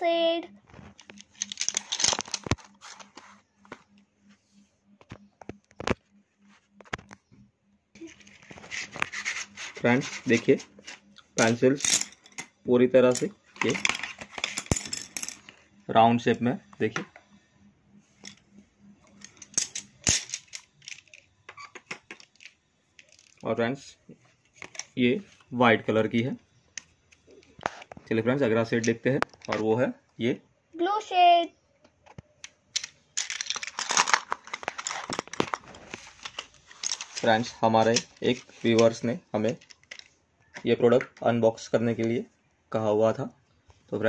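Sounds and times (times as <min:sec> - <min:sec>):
wooden pencils clicking together: 0:00.9 - 0:02.6, 0:19.2 - 0:23.5, 0:32.4 - 0:35.6, 0:36.2 - 0:40.1.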